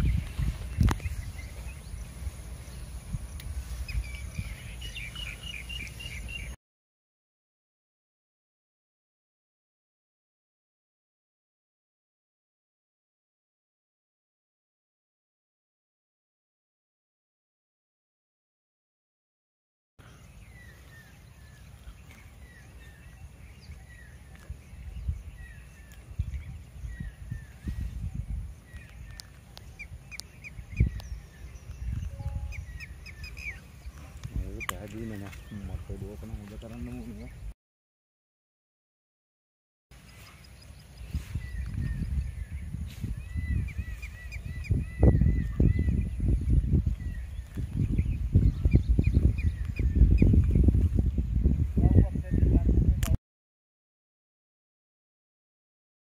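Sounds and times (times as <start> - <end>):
small birds chirping: 0.0 - 6.6, 20.0 - 37.6, 40.0 - 52.8.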